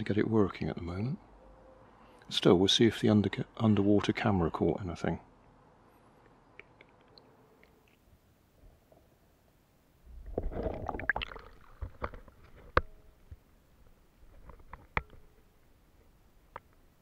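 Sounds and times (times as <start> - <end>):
muffled water sloshing and splashing: 10.1 - 12.5.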